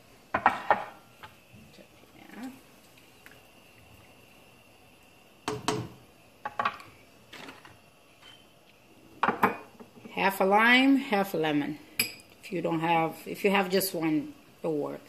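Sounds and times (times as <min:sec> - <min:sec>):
faint high whine: 0:00.0 - 0:09.8
cookware knocking and clattering: 0:09.2 - 0:09.9.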